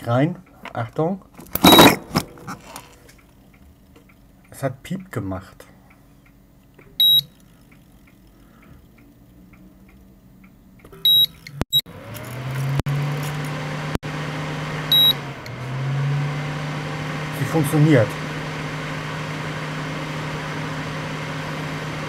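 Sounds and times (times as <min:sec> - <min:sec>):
short high beeps: 0:01.6 - 0:02.0, 0:07.0 - 0:07.3, 0:11.0 - 0:11.4, 0:14.9 - 0:15.2
cooling fan whirring: 0:11.5 - 0:22.0.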